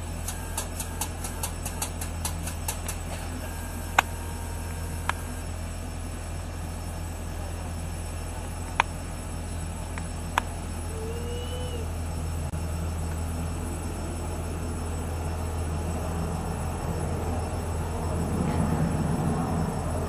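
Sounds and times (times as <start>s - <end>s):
steady low hum: 0.0s - 20.0s
quick ticks: 0.2s - 3.1s
sharp clicks: 0.2s - 3.2s.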